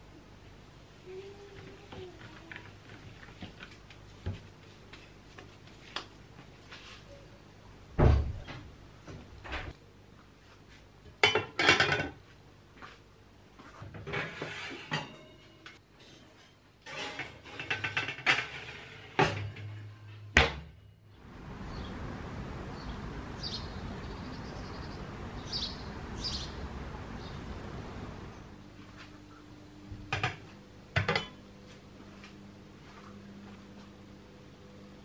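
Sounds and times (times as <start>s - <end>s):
outdoor background noise: 0.0s - 35.0s
bird chirps: 22.7s - 26.6s.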